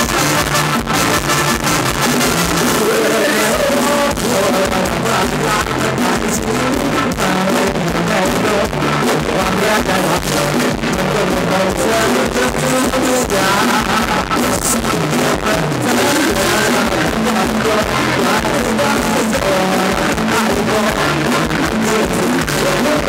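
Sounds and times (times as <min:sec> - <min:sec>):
bass line: 0:00.0 - 0:23.0
drum kit with cymbals: 0:00.0 - 0:23.0
live band playing dance music: 0:00.0 - 0:23.0
electric keyboard: 0:11.1 - 0:14.6.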